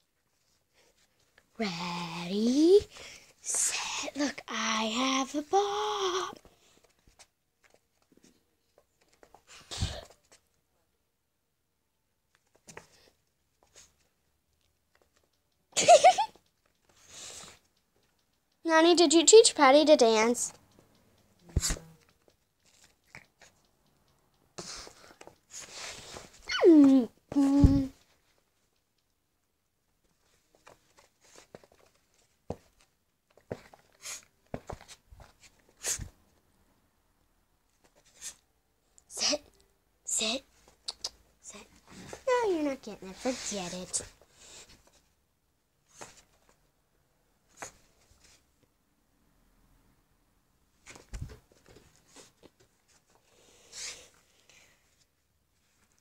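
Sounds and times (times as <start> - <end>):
loud high-pitched squeak: 26.4 - 26.8
soft hiss: 37.7 - 46.6.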